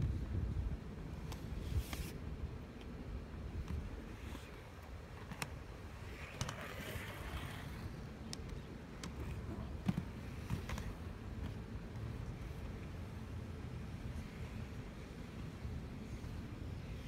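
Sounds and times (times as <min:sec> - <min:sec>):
skate wheels rolling on concrete: 0:00.0 - 0:17.0
skates clicking and knocking: 0:03.7 - 0:12.2.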